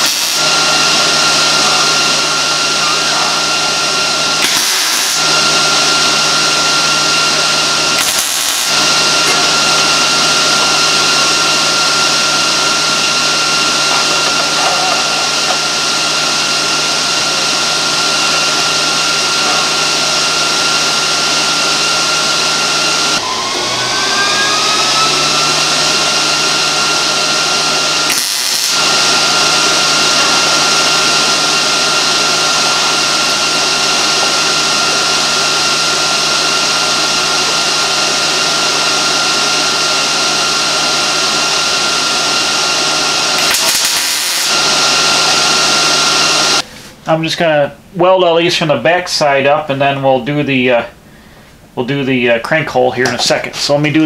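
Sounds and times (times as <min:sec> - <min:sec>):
machine rushing hiss: 0:00.0 - 0:02.6, 0:03.4 - 0:13.9, 0:27.8 - 0:37.8, 0:43.3 - 0:46.8
thin machine whine: 0:00.0 - 0:47.0
machine hum: 0:00.0 - 0:47.1.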